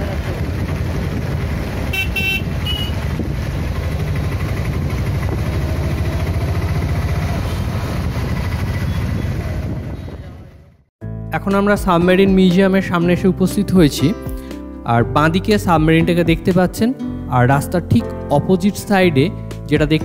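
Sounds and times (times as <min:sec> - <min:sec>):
traffic rumble: 0:00.0 - 0:10.9
vehicle horn honking: 0:01.8 - 0:03.1.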